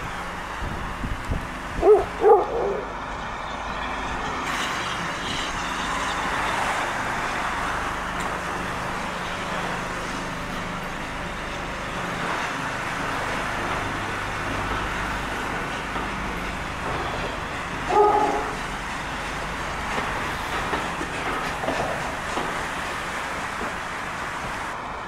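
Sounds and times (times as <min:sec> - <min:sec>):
train rumbling: 0:00.0 - 0:25.0
dog barking: 0:01.8 - 0:02.8, 0:17.9 - 0:18.6.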